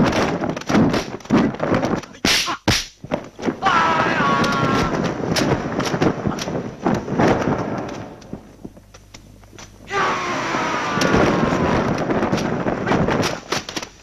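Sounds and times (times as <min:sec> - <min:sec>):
sharp fight hits: 0:00.0 - 0:06.0.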